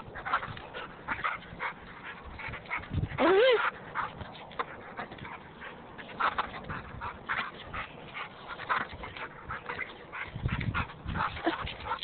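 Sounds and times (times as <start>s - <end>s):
dog whimpering and yipping: 3.1s - 3.8s.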